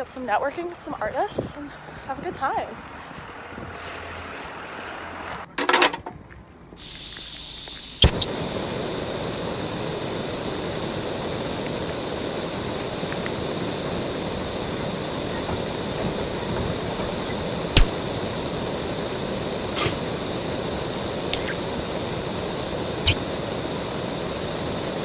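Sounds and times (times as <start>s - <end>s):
commuter train running: 0.0s - 5.6s, 6.7s - 25.0s
faint outdoor noise: 0.0s - 25.0s
sharp click: 8.0s - 8.3s, 17.8s - 18.0s, 19.8s - 20.0s, 21.3s - 21.6s, 23.0s - 23.2s
brief loud burst: 8.0s - 8.4s, 17.8s - 18.1s, 19.8s - 20.1s, 23.0s - 23.3s.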